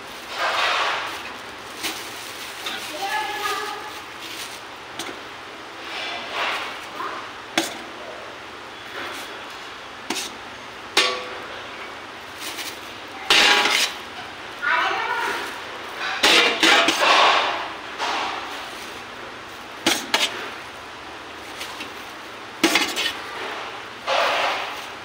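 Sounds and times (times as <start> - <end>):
plastic bag crinkling: 0.0 - 5.2, 12.2 - 13.2.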